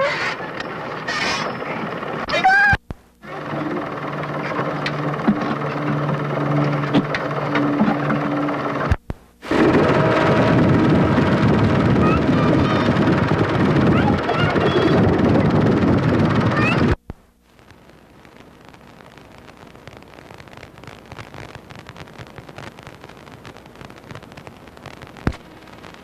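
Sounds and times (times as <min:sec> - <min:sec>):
steady low hum: 0:00.0 - 0:26.0
loud steady rushing noise: 0:03.3 - 0:17.0.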